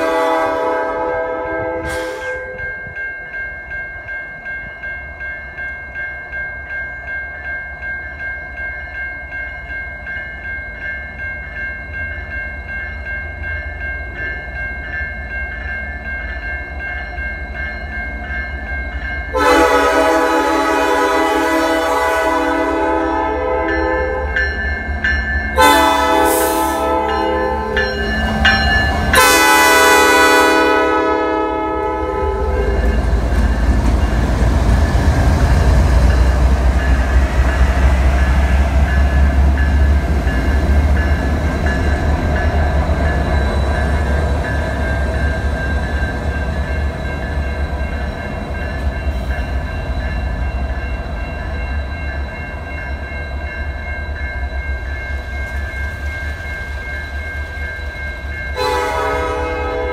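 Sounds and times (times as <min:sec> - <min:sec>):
locomotive air horn blasts: 0:00.0 - 0:02.6, 0:19.3 - 0:24.4, 0:25.6 - 0:27.8, 0:29.1 - 0:32.8, 0:58.6 - 0:59.9
crossing bell ringing: 0:00.0 - 0:59.9
locomotive engines rumbling: 0:13.2 - 0:59.9.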